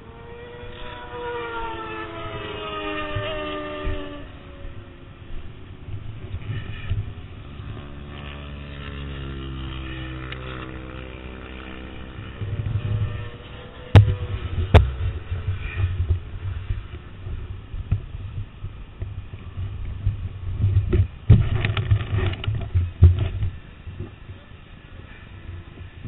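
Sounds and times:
wind on microphone: 0.0 - 9.0, 9.7 - 26.0
camera handling knocks and rubbing: 20.6 - 23.5.

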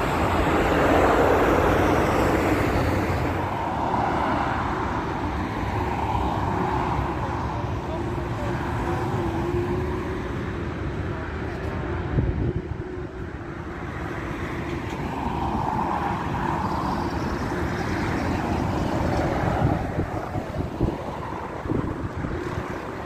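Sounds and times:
wind buffeting microphone: 11.9 - 13.2, 15.4 - 23.0.

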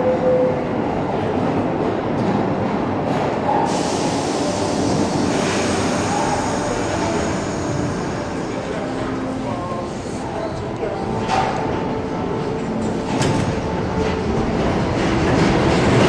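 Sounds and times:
train wheels rumbling on rail: 0.0 - 16.0
hiss: 3.6 - 9.4.

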